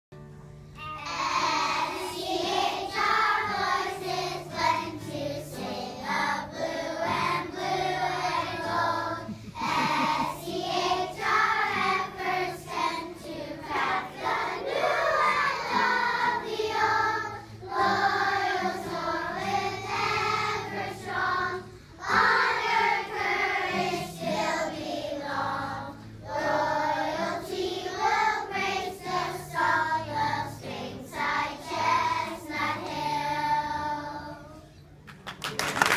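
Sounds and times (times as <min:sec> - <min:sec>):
children singing together: 0:00.8 - 0:34.7.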